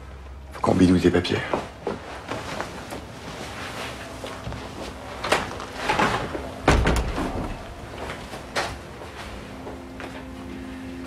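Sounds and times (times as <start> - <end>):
door banging: 5.9 - 7.8
door opening hard: 5.9 - 7.8.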